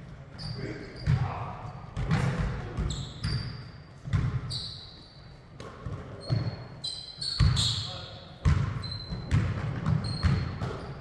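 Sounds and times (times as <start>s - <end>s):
sneakers squeaking on court: 0.3s - 11.0s
basketball bouncing on hardwood floor: 4.1s - 4.5s, 7.4s - 7.6s, 8.4s - 11.0s.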